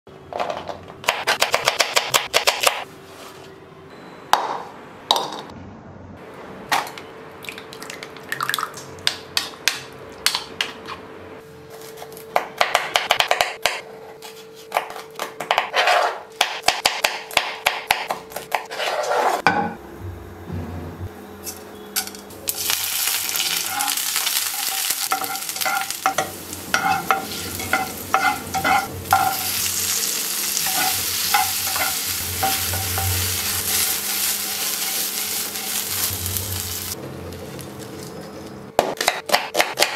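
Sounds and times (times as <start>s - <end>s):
knife chopping on wooden board: 38.8s - 39.9s.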